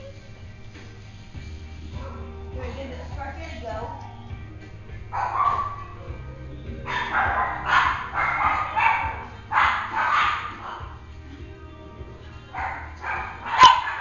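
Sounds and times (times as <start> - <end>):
puppy yipping and barking: 5.1 - 6.0, 6.9 - 11.0, 12.6 - 14.0.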